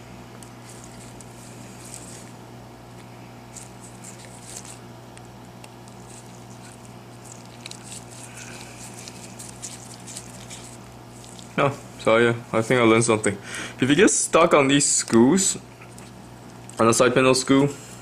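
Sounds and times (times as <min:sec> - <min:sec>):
hot air gun humming: 0:00.0 - 0:12.7.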